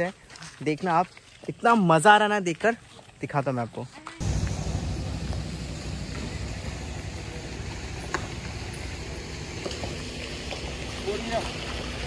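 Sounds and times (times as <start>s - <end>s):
vehicle engine rumbling: 4.2s - 12.0s.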